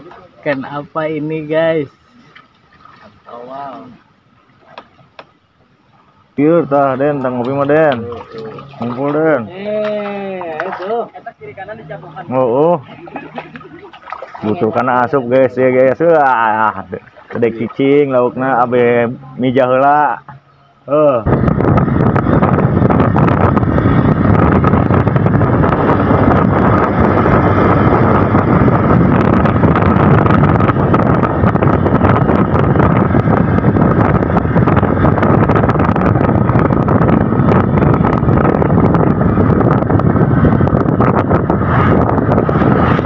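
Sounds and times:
wind rushing over microphone: 6.4 - 43.0
motorcycle engine running: 21.3 - 43.0.

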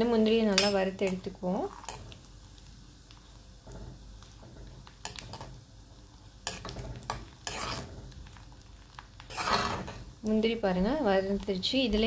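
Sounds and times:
nuts frying with low sizzle: 0.0 - 12.0
spoon scraping a pan: 0.5 - 2.2, 3.6 - 5.6, 6.4 - 8.4, 9.2 - 10.2.

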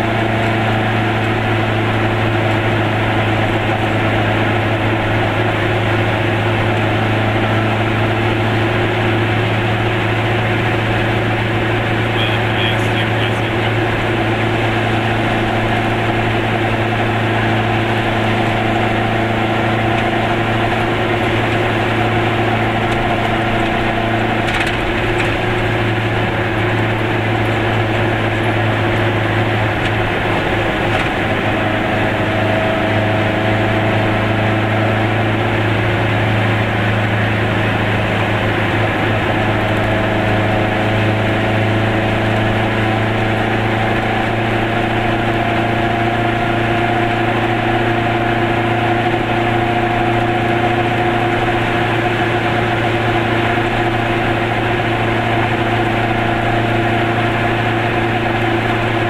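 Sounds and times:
small car engine droning: 0.0 - 59.0.

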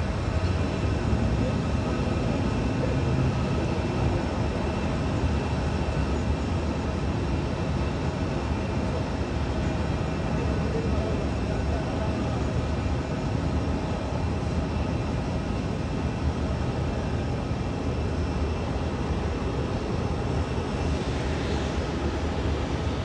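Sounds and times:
jet engines running: 0.0 - 23.0.

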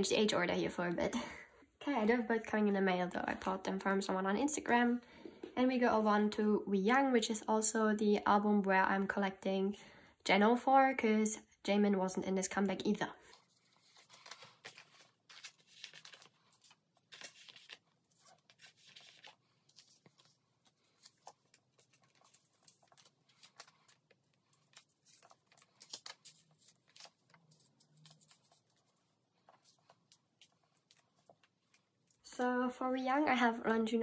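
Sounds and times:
plastic sleeves crinkling: 13.2 - 32.3.

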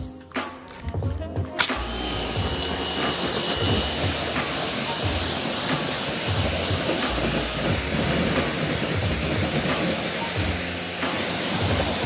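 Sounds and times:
pressure washer spraying water: 1.6 - 12.0.

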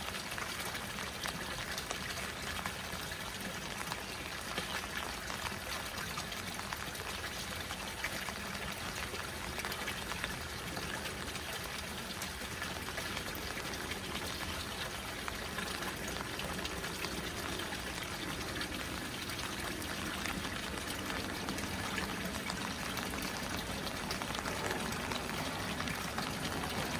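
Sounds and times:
rain falling on water: 0.0 - 26.9
water pouring from a pipe into a pond: 0.0 - 26.9.

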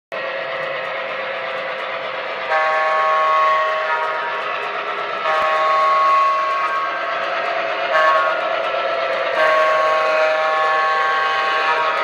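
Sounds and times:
model train air horn chord: 2.5 - 4.3, 5.2 - 7.0, 7.9 - 8.5, 9.4 - 12.0.

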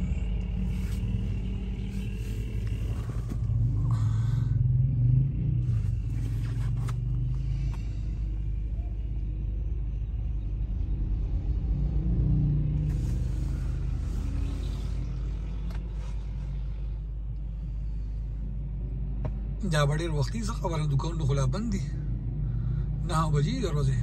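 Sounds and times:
sharp noises from outside: 0.0 - 19.6
car engine rumble: 0.0 - 24.0
road noise: 0.0 - 24.0.

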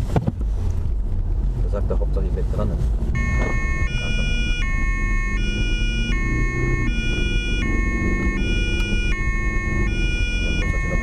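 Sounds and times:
road and engine noise: 0.0 - 11.0
police two-tone siren: 3.2 - 11.0.

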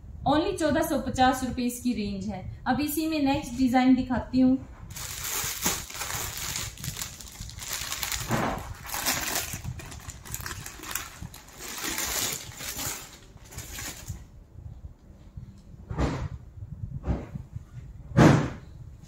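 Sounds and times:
plastic packaging crinkling: 4.9 - 14.3.

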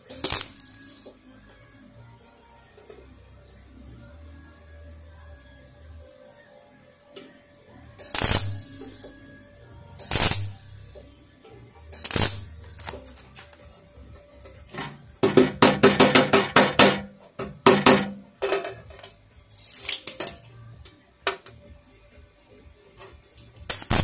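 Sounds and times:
crackling weld burst: 0.1 - 1.0, 8.0 - 9.1, 10.0 - 11.0, 12.0 - 13.2, 23.7 - 24.0
hammer tapping steel panel: 15.2 - 18.2.

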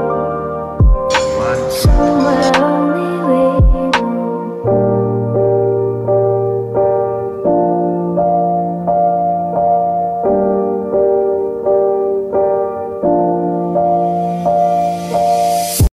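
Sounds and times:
soft piano music: 0.0 - 15.9.

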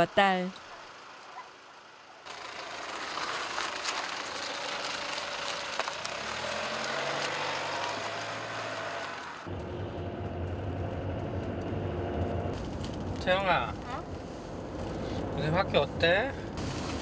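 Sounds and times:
minivan driving past: 0.9 - 16.4
engine drone inside moving car: 9.4 - 16.9.

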